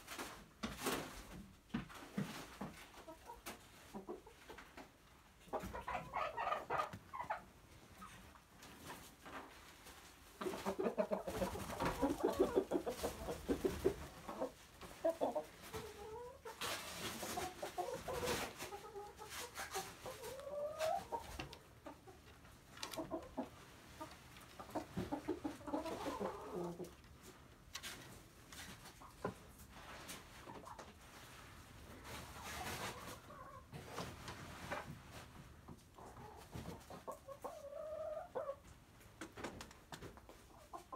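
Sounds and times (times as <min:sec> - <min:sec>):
hens and rooster clucking: 0:01.7 - 0:40.9
drawn-out bending chicken calls: 0:02.7 - 0:08.4, 0:10.3 - 0:27.0, 0:32.4 - 0:33.8, 0:36.0 - 0:38.7.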